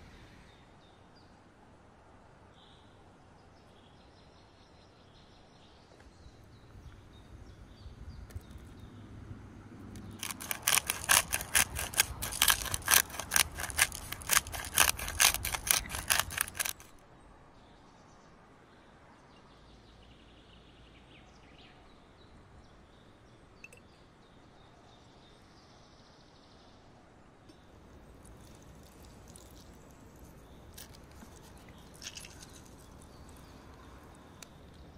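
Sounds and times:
faint background noise: 0.0s - 34.9s
faint high chirps: 23.6s - 24.1s.

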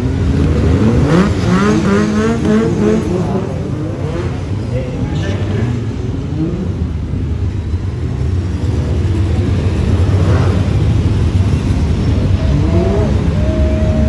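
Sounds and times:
engine revving up: 0.0s - 4.5s, 12.2s - 14.0s
race car engines rumbling: 0.0s - 14.0s.

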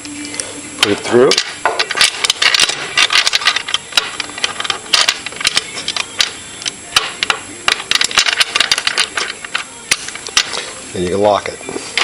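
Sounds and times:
padlock clicking and rattling: 1.3s - 10.6s.

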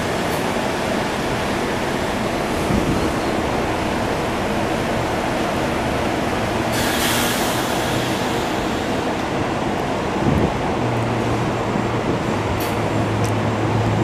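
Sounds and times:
electric train running on rails: 0.0s - 14.0s
high hiss: 6.7s - 9.1s.

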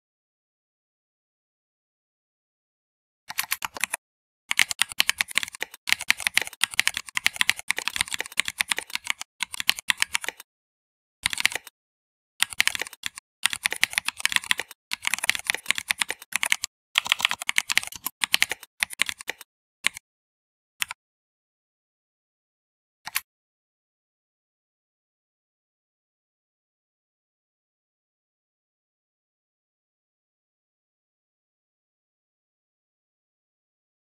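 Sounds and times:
computer keyboard typing: 3.3s - 10.4s, 11.2s - 11.7s, 12.4s - 20.0s.

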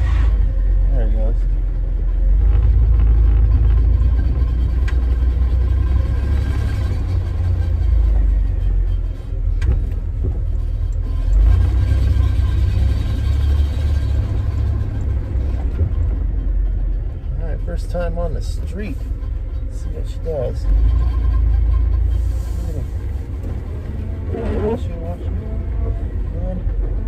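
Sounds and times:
pickup engine rumble in cab: 0.0s - 27.0s.

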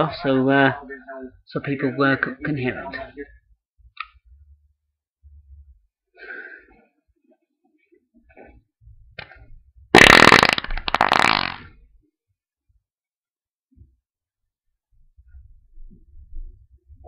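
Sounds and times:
loud fluttering fart: 10.0s - 11.8s.

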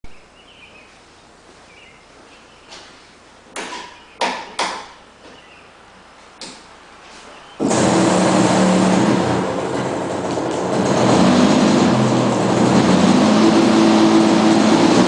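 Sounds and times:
faint bird chirps: 1.6s - 2.9s, 7.2s - 7.6s.

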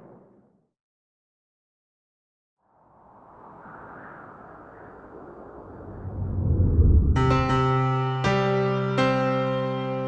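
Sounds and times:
whooshing rumble effect: 2.8s - 7.7s.

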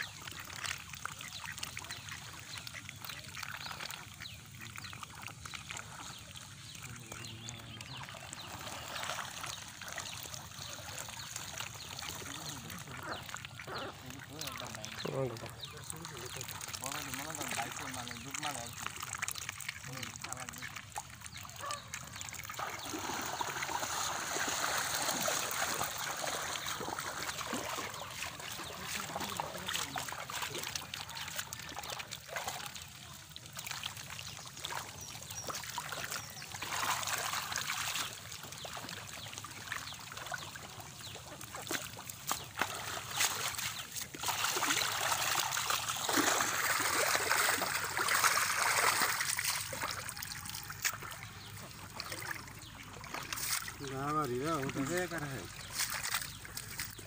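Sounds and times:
muddy water sloshing and splashing: 0.0s - 57.0s.

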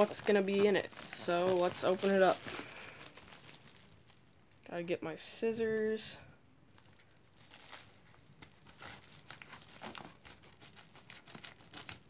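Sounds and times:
plastic bag crinkling: 0.0s - 4.7s, 6.7s - 12.0s.

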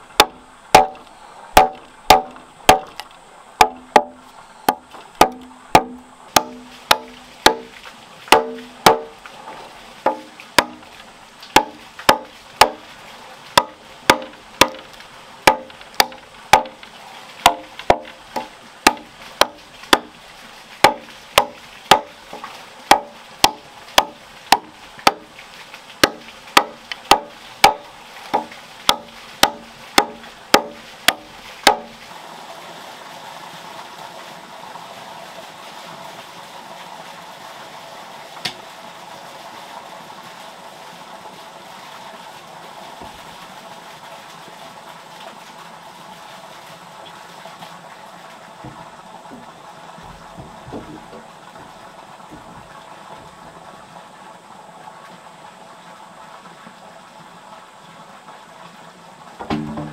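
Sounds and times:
machete chopping wood: 0.2s - 1.0s, 1.6s - 3.0s, 3.6s - 7.7s, 8.3s - 9.2s, 10.0s - 10.8s, 11.6s - 12.8s, 13.6s - 16.8s, 17.4s - 20.1s, 20.8s - 22.2s, 22.9s - 25.3s, 26.0s - 31.9s, 59.4s - 59.9s.

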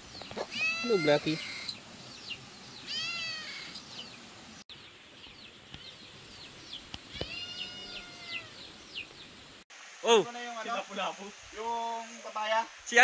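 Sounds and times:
small birds chirping: 0.0s - 9.6s
cat meowing: 0.5s - 1.7s, 2.9s - 3.8s, 7.1s - 8.6s.

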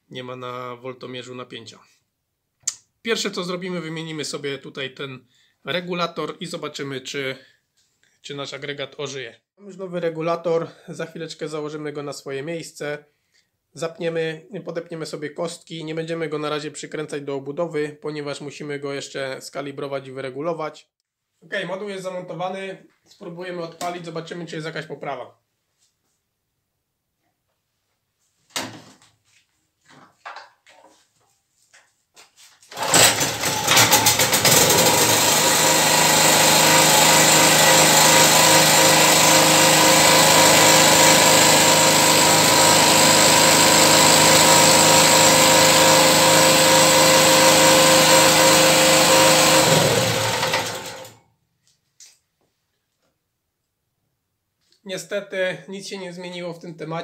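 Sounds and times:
petrol generator engine running: 32.7s - 51.1s.

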